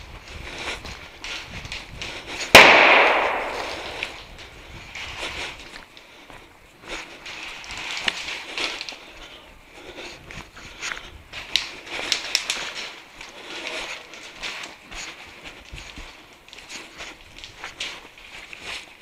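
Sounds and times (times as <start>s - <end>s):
footsteps crunching on frozen snow: 0.0s - 19.0s.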